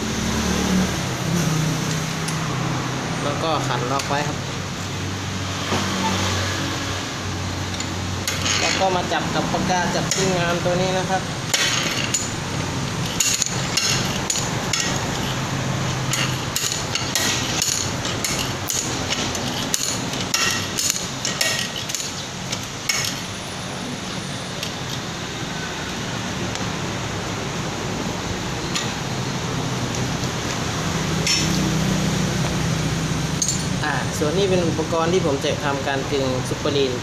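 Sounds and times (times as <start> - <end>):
steady low hum: 0.0 - 37.0
vise handle clanking: 7.7 - 9.1, 11.5 - 23.3, 31.2 - 31.6, 33.4 - 33.8.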